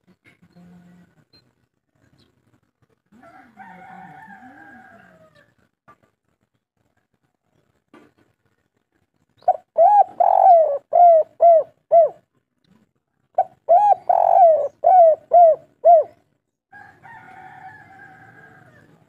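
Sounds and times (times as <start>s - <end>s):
dove cooing: 9.5s - 12.3s, 13.4s - 16.2s.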